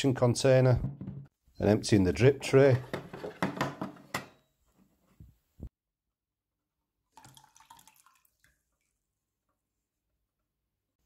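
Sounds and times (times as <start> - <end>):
liquid trickling into plastic tub: 7.1 - 9.1
faint drips: 7.2 - 9.6.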